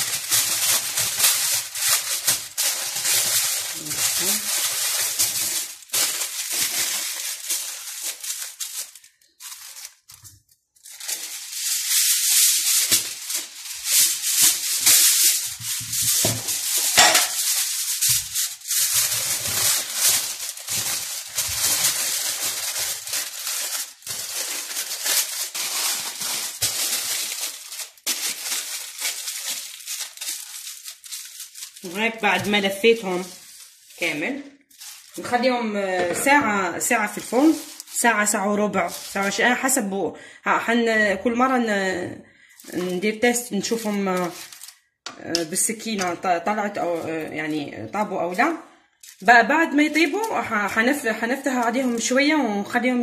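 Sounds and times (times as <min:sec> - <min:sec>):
aluminium foil crinkling: 0:00.0 - 0:40.0, 0:42.4 - 0:53.0.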